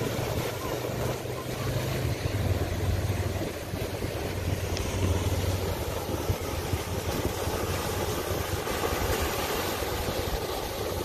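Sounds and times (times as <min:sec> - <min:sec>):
ocean surf breaking on rocks: 0:00.0 - 0:11.0
wind on microphone: 0:00.0 - 0:11.0.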